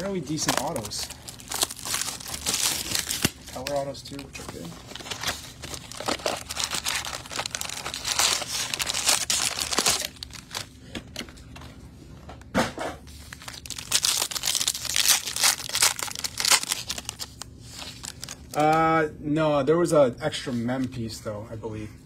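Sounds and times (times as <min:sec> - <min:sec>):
plastic wrapping crinkling and tearing: 0:00.0 - 0:10.9, 0:13.1 - 0:18.8.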